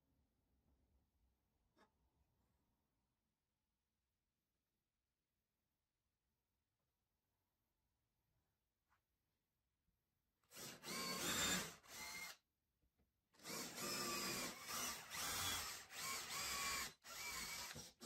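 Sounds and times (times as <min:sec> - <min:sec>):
cordless drill whining: 0:10.5 - 0:12.4, 0:13.4 - 0:18.0.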